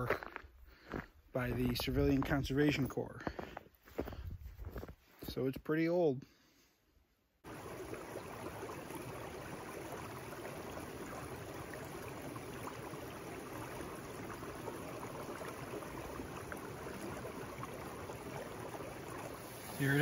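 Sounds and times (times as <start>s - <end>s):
stream flowing: 7.4s - 20.0s.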